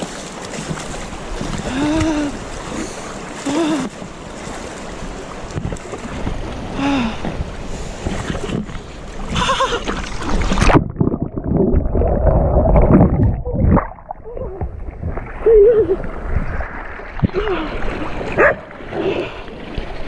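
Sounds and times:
rushing river water: 0.0 - 20.0
wind on microphone: 5.2 - 20.0
muffled underwater bubbling: 9.3 - 16.6.

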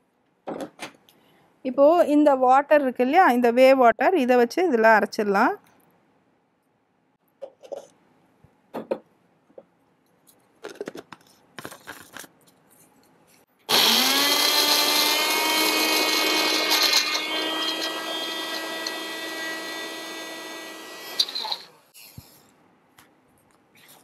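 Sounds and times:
mixer grinder motor whine: 13.7 - 21.9.

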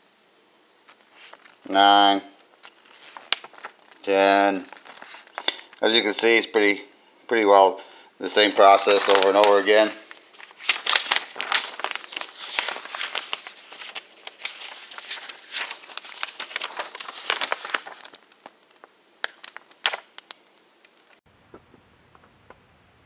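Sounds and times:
paper rustling and crinkling: 0.8 - 6.2, 8.3 - 21.2
sharp paper clicks: 2.5 - 5.8, 8.6 - 21.2.

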